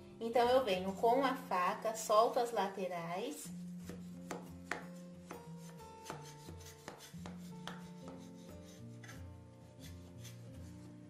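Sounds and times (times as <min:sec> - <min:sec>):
soft background music: 0:00.0 - 0:11.0
knife scraping metal pan: 0:04.8 - 0:10.6.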